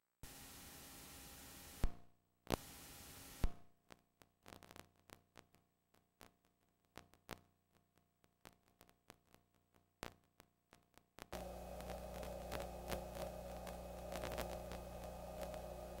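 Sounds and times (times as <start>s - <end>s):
blank tape hiss: 0.2s - 3.6s, 11.2s - 16.0s
faint crackles and ticks: 0.2s - 16.0s.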